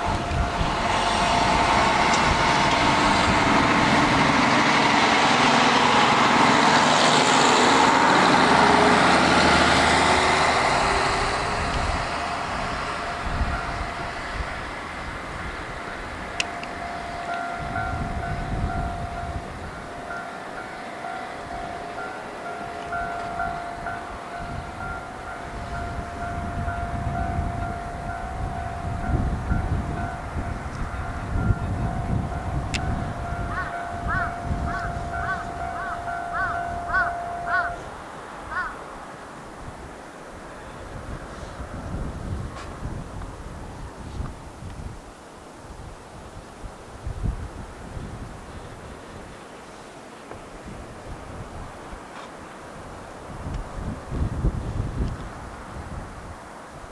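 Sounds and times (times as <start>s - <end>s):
level-crossing alarm ringing: 0.0s - 4.8s, 8.4s - 14.7s, 15.8s - 38.0s
faint rising tone: 0.0s - 38.2s
diesel railcar engine: 0.0s - 56.9s.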